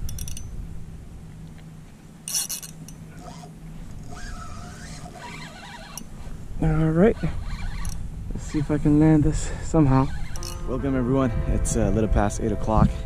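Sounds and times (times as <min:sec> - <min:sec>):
fishing reel clicking: 0:00.0 - 0:00.5, 0:02.3 - 0:06.1, 0:07.2 - 0:08.0, 0:10.0 - 0:10.6
rod handling noise: 0:00.0 - 0:00.5, 0:01.4 - 0:06.4, 0:10.1 - 0:10.6.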